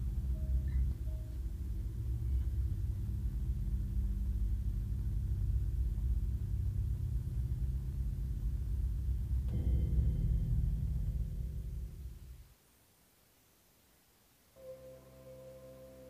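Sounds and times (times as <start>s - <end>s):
low steady rumble: 0.0s - 12.7s
faint hum: 0.0s - 16.0s.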